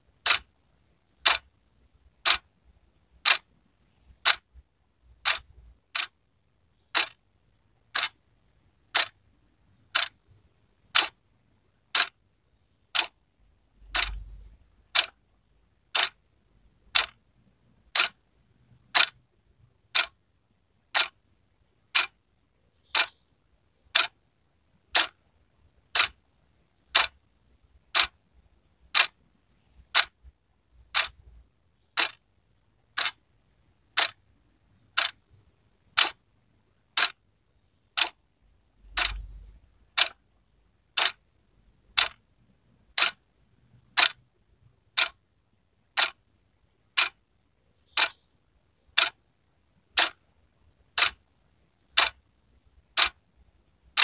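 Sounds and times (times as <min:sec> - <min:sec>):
wall clock ticking: 0:00.2 - 0:06.2, 0:06.8 - 0:16.2, 0:16.8 - 0:20.2, 0:20.8 - 0:21.2, 0:21.8 - 0:22.2, 0:22.8 - 0:23.2, 0:23.8 - 0:24.2, 0:24.8 - 0:27.2, 0:27.8 - 0:28.2, 0:28.8 - 0:32.3, 0:32.9 - 0:33.2, 0:33.9 - 0:37.2, 0:37.9 - 0:38.2, 0:38.8 - 0:40.2, 0:40.8 - 0:41.2, 0:41.8 - 0:42.2, 0:42.9 - 0:44.2, 0:44.8 - 0:45.2, 0:45.9 - 0:46.2, 0:46.8 - 0:47.3, 0:47.9 - 0:48.3, 0:48.9 - 0:49.2, 0:49.8 - 0:53.2.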